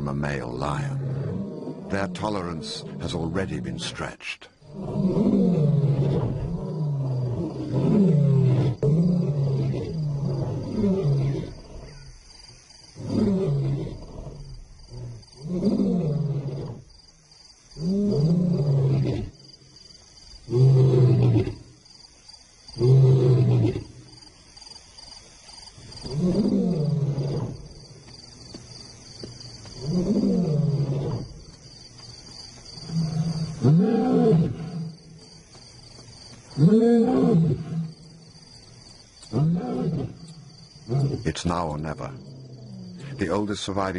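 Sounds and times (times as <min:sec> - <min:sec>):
lions roaring: 0:04.6 - 0:12.0, 0:29.8 - 0:31.4, 0:32.9 - 0:35.0, 0:36.6 - 0:38.0.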